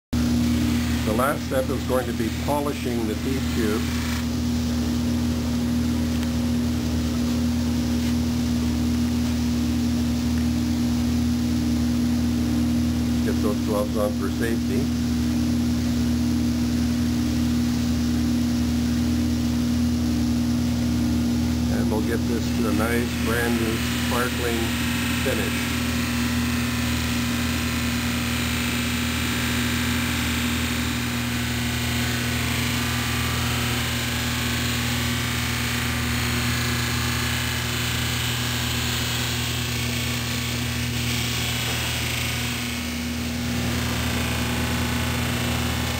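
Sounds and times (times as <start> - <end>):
electric motor humming: 0.2 - 45.9
buffing wheel hissing on metal: 21.8 - 45.9.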